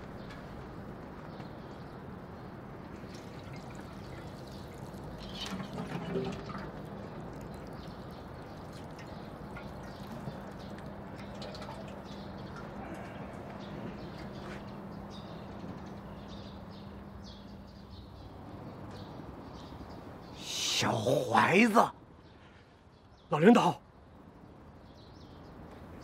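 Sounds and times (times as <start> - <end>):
water pouring from watering can: 3.0 - 13.0.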